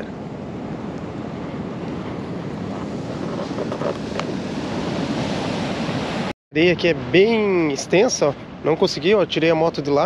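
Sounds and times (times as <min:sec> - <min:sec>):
wind noise on microphone: 0:00.0 - 0:06.3
ocean surf on a beach: 0:00.0 - 0:10.0.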